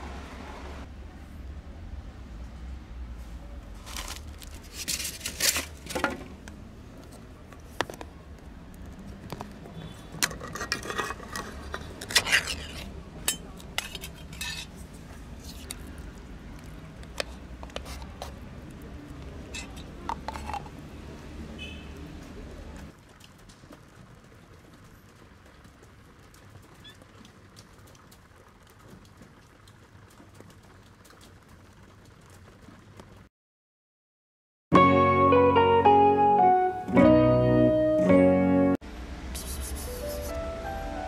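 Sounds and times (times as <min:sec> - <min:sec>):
metal tin and dishes clinking: 0:10.1 - 0:14.8, 0:19.5 - 0:20.8.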